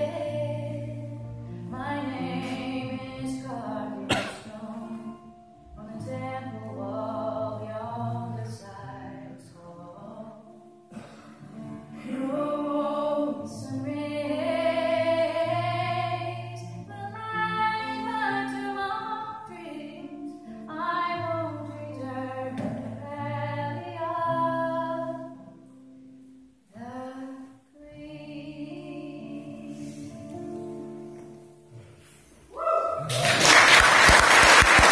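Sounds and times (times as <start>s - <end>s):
woman singing: 0.0s - 10.8s, 12.0s - 25.5s, 26.7s - 30.8s
strummed acoustic guitar: 0.0s - 24.4s.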